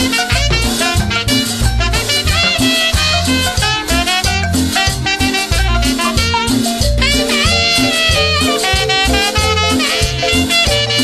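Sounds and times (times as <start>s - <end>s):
latin dance instrumental music: 0.0s - 11.0s.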